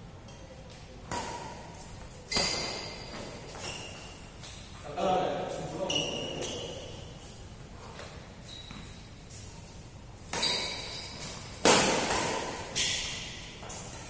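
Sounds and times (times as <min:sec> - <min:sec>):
badminton rackets striking shuttlecock: 0:10.3 - 0:14.0.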